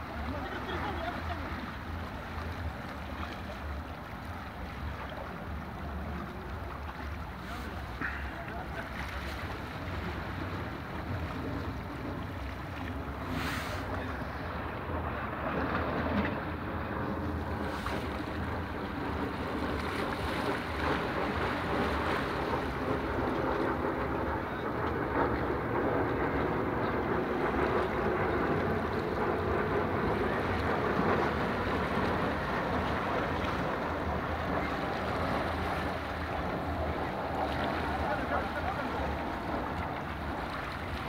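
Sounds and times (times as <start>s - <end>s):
waves washing against rocks: 0.0s - 41.0s
wind buffeting microphone: 0.0s - 41.0s.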